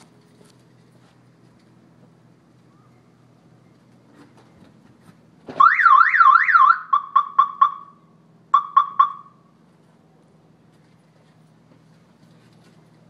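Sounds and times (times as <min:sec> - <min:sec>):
car engine idling: 0:00.0 - 0:13.0
car alarm chirps: 0:05.6 - 0:09.4
car alarm wailing: 0:05.6 - 0:09.4.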